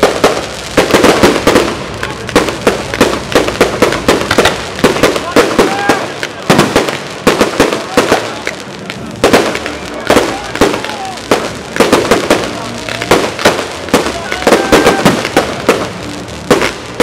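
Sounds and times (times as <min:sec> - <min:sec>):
fireworks bursting with bangs: 0:00.0 - 0:17.0
fireworks crackling: 0:00.0 - 0:17.0.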